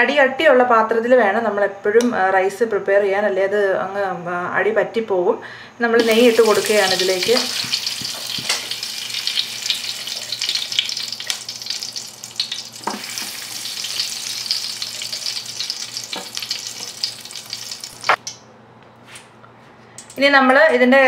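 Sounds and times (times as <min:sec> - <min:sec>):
ghee sizzling in a metal pot: 0:06.0 - 0:18.2.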